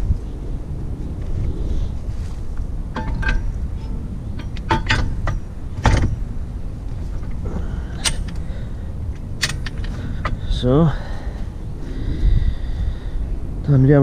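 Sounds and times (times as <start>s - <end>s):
steady low rumble: 0.0s - 14.0s
metal drawbar clanking: 2.9s - 10.7s.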